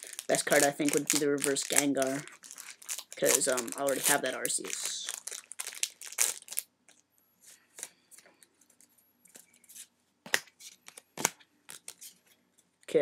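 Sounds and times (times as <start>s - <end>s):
foil wrapper crinkling and tearing: 0.0s - 7.0s.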